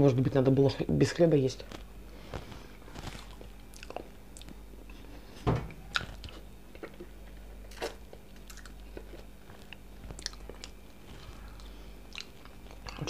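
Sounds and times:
chewing and lip smacks: 3.0 - 4.6, 5.9 - 13.0.

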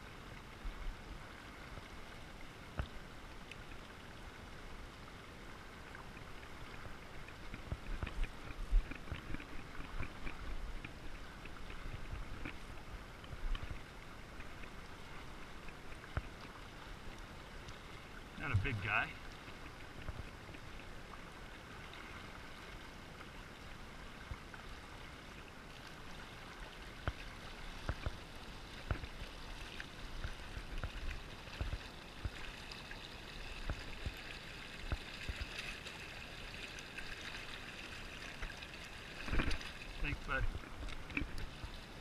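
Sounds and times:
shallow river current: 0.0 - 42.0.

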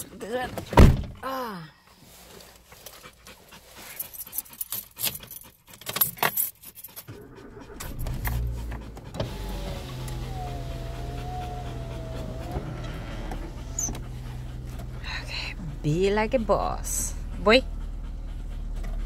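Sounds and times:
car keys jangling and clicking: 4.0 - 9.1
car engine humming: 7.1 - 19.0
dog whining: 7.2 - 14.8.

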